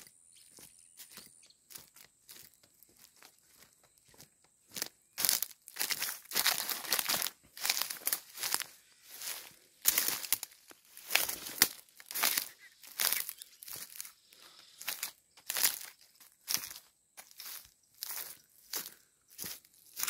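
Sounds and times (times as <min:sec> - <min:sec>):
footsteps on dry ground: 0:00.0 - 0:20.0
leaves and branches crunching: 0:00.5 - 0:20.0.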